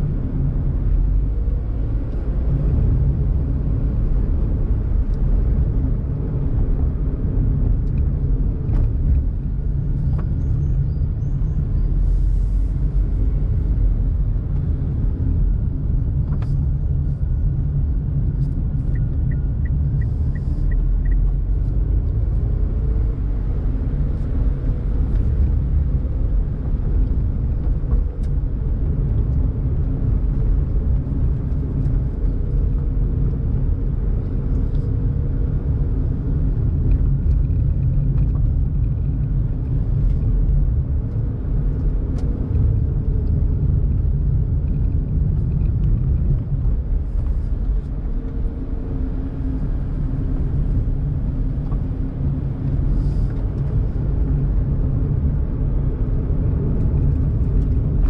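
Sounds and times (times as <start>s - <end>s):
car engine humming: 0.0s - 58.0s
tyre and road noise: 0.0s - 58.0s.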